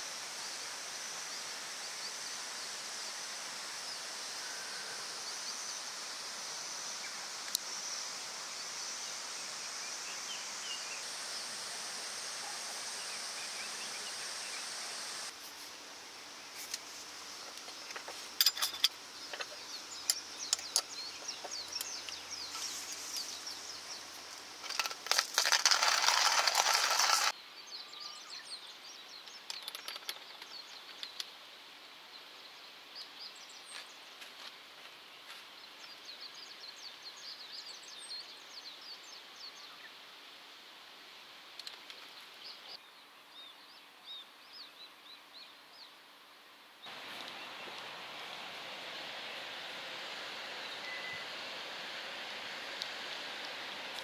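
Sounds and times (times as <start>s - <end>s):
rushing hiss: 0.0s - 27.4s, 46.8s - 54.0s
birds chirping: 17.3s - 31.3s, 46.8s - 54.0s
wood fire crackling: 24.6s - 27.4s.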